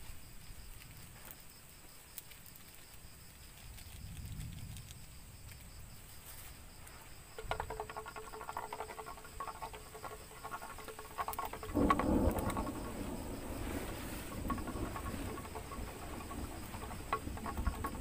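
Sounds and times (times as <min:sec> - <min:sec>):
night insects chirping: 0:00.0 - 0:18.0
rough handling: 0:06.1 - 0:18.0.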